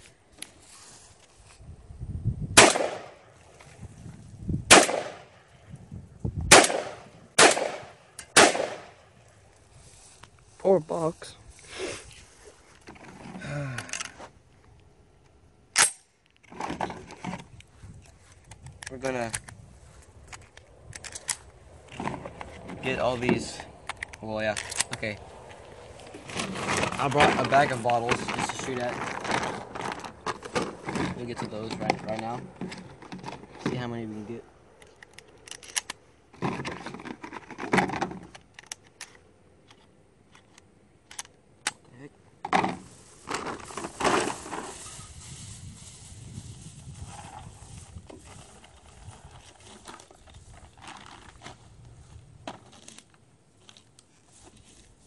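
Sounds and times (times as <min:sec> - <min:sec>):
rustling: 0:00.0 - 0:01.7, 0:06.5 - 0:14.4, 0:16.4 - 0:34.2, 0:42.5 - 0:55.0
shotgun shells clicking into magazine: 0:34.8 - 0:36.0.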